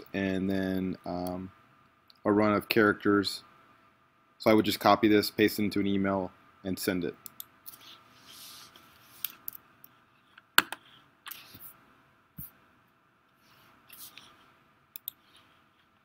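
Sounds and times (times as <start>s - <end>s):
faint steady hum: 0.0s - 16.0s
computer clicks and taps: 10.5s - 11.4s, 15.0s - 15.2s.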